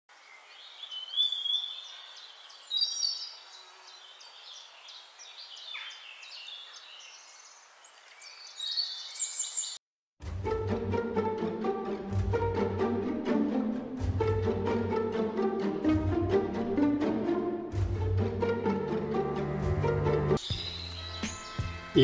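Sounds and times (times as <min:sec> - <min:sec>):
birds chirping and whistling: 0:00.5 - 0:09.8, 0:20.4 - 0:21.8
bowed string music: 0:10.2 - 0:22.0.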